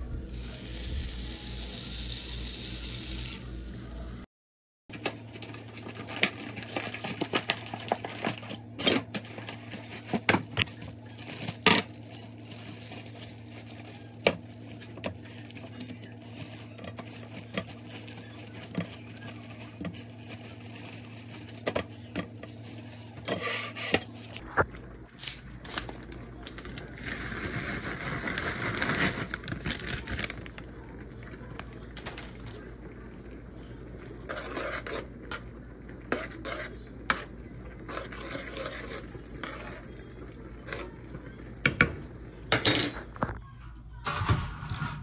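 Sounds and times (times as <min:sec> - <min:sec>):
cardboard and plastic bag crinkling: 0:04.9 - 0:23.3, 0:25.2 - 0:32.6.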